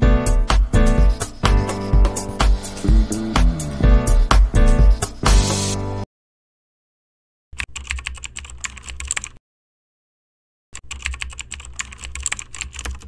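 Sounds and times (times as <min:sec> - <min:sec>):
rapid keyboard key clicks: 0:07.6 - 0:09.4, 0:10.8 - 0:13.0.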